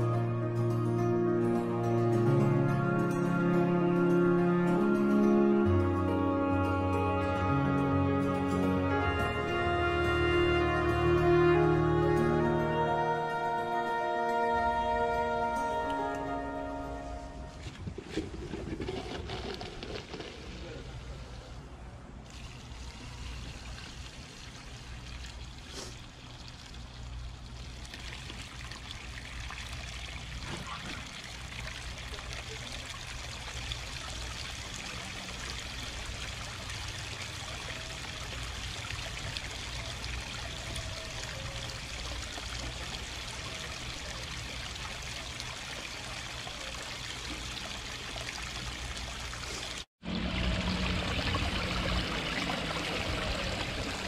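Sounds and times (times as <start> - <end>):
waterfall splashing into pond: 22.2 - 54.0.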